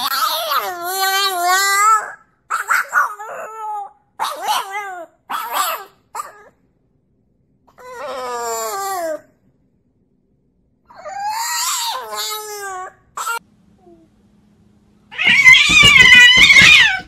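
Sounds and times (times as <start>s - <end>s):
puppy howling: 7.7s - 9.2s, 10.9s - 13.4s, 15.1s - 17.0s.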